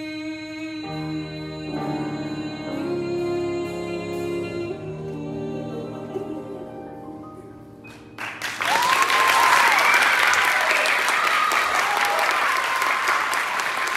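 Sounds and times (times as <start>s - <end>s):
audience applauding: 8.2s - 13.9s.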